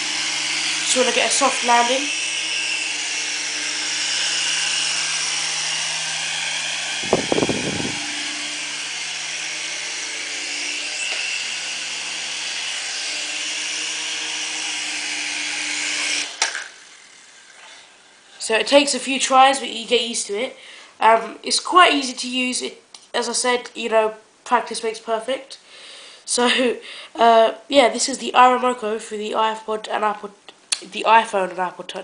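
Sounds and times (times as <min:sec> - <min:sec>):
toy helicopter rotors whirring: 0:00.0 - 0:19.6.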